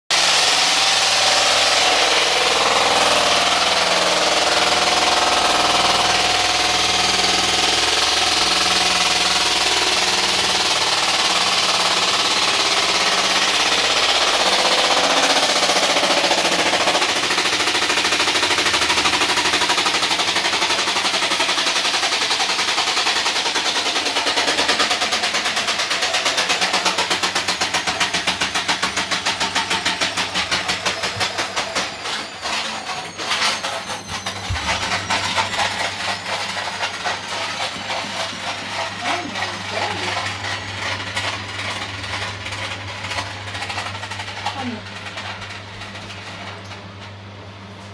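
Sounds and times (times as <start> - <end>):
washing machine drum spinning: 0.1 - 47.2
fast rattling knock: 1.5 - 31.9.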